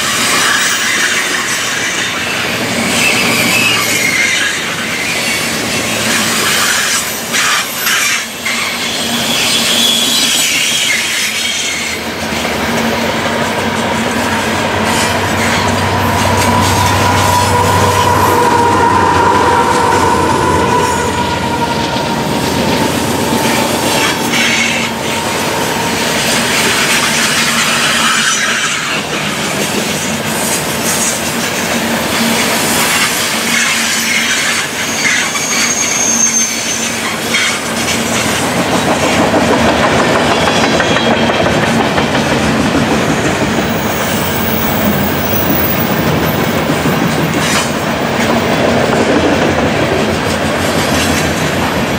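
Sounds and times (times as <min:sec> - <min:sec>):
locomotive engines: 0:00.0 - 0:51.9
train wheels clacking on rails: 0:00.0 - 0:51.9
high flange squeal: 0:00.2 - 0:29.1, 0:32.1 - 0:38.8, 0:43.6 - 0:47.8.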